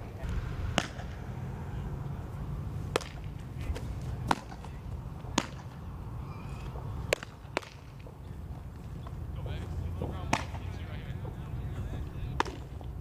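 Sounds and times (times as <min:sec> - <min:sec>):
low background rumble: 0:00.0 - 0:06.4.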